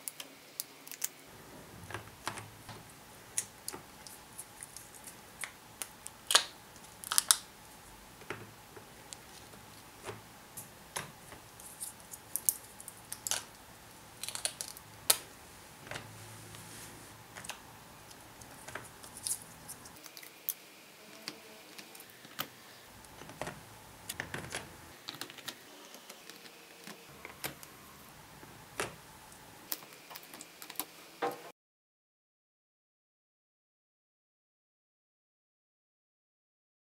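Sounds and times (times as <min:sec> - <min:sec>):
plastic film peeling clicks: 0:05.4 - 0:07.5.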